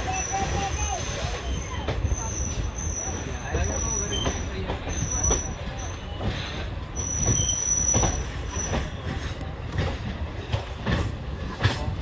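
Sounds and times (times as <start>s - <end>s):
high thin wheel squeal: 0.0s - 9.4s
clacks over rail joints: 0.0s - 12.0s
train wheels rumbling: 0.0s - 12.0s.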